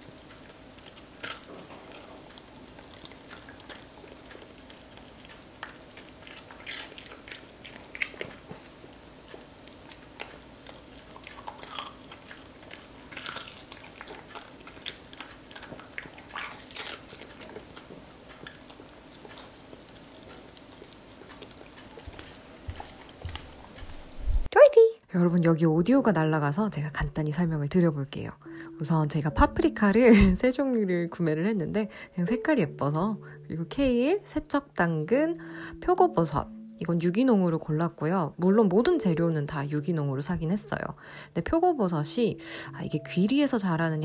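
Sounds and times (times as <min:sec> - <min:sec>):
dog chewing food: 0:00.0 - 0:24.5
faint steady hum: 0:00.0 - 0:44.0.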